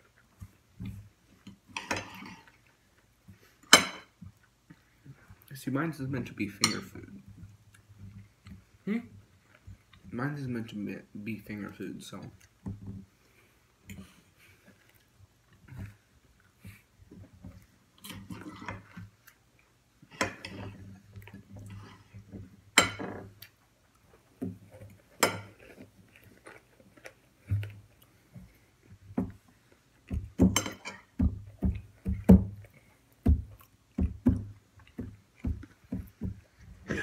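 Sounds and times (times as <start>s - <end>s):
cutlery scraping on plate: 1.7s - 2.6s, 20.1s - 20.9s, 22.8s - 23.2s, 25.2s - 25.9s, 30.5s - 31.1s.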